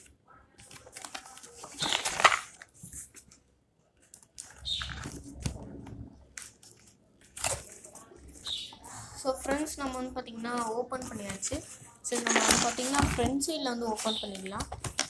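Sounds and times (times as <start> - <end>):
cardboard rustling: 0.0 - 3.4, 9.4 - 15.0
cardboard tearing: 0.8 - 2.6, 12.1 - 13.1.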